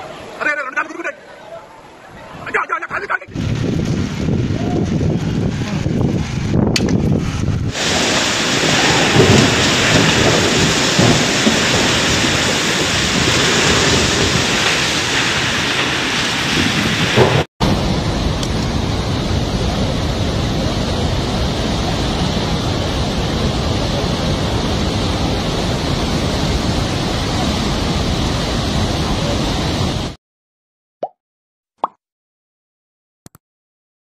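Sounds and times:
flooded river rushing: 0.0 - 30.2
storm wind and heavy rain: 1.9 - 30.2
wind buffeting microphone: 3.2 - 30.2.

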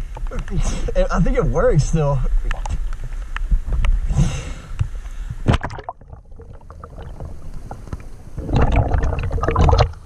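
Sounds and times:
water splashing and sloshing: 2.2 - 4.0, 4.8 - 10.0
underwater bubbling: 4.7 - 10.0.

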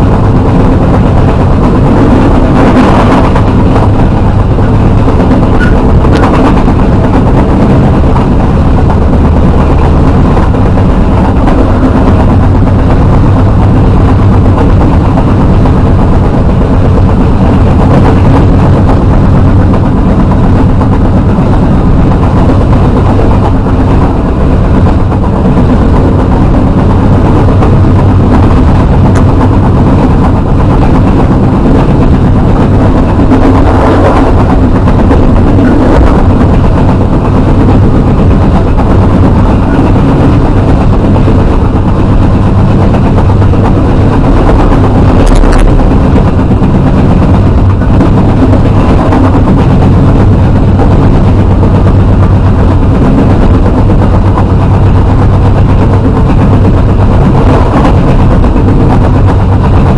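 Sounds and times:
train wheels on rails: 0.0 - 59.9.

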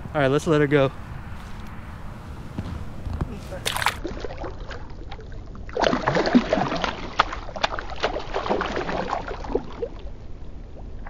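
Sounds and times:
water splashing at bank: 3.2 - 11.0.

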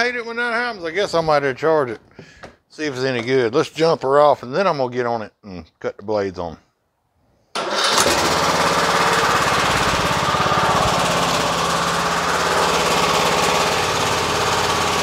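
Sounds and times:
riding mower engine running: 7.6 - 15.0.

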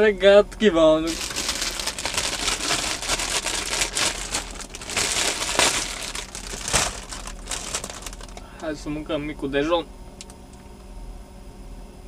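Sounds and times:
plastic bag crinkling: 1.1 - 8.6.

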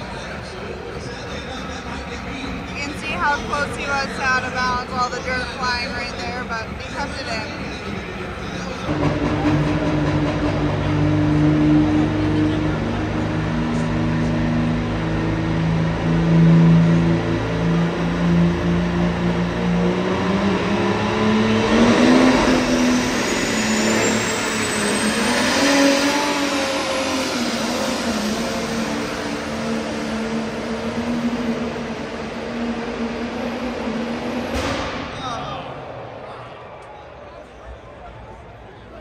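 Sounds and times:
tractor engine running hard: 0.0 - 34.9
high whine rising in pitch: 10.6 - 37.6.

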